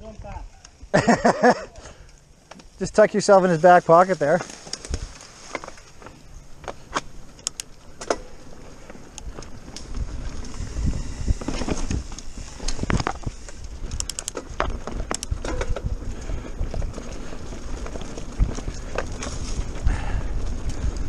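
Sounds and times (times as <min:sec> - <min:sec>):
tyres rolling through dry leaves: 0:00.0 - 0:21.0
bike knocking and clattering: 0:02.4 - 0:21.0
steady low rumble: 0:06.2 - 0:21.0.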